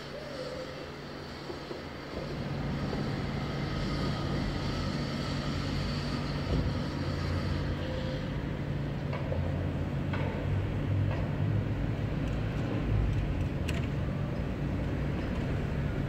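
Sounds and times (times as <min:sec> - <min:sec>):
city background hiss: 0:00.0 - 0:10.0
vehicle engine rumbling: 0:00.0 - 0:16.0.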